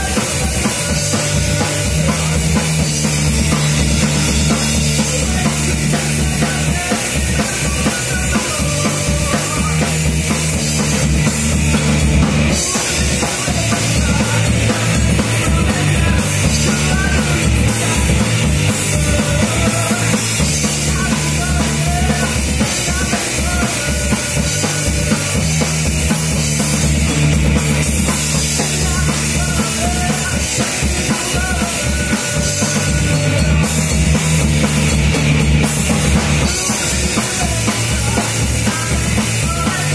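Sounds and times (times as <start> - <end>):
person singing into a microphone: 0.0 - 10.3, 12.5 - 25.7, 28.4 - 34.1, 36.4 - 39.9
bass guitar: 0.0 - 39.9
drum kit playing: 0.0 - 39.9
electric guitar: 0.0 - 39.9.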